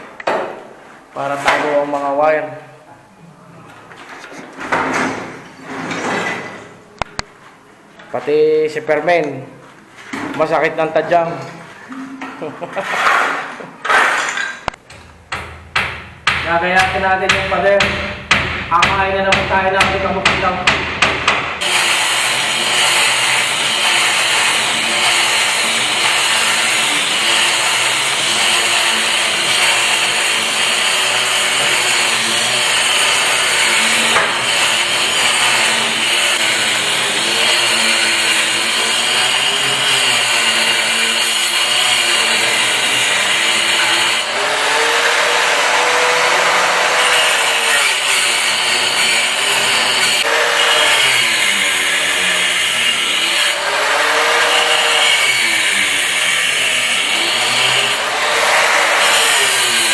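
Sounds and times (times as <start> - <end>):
angle grinder cutting wall: 12.6 - 59.9.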